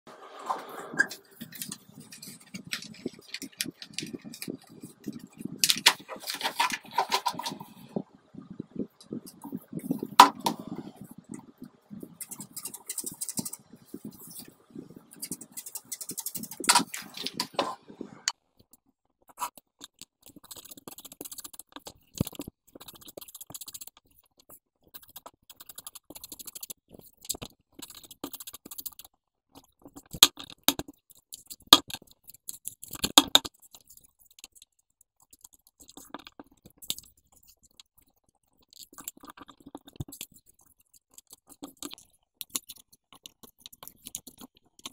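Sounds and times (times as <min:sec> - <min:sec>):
paper rustling and sliding: 0:00.4 - 0:07.8, 0:16.3 - 0:17.8.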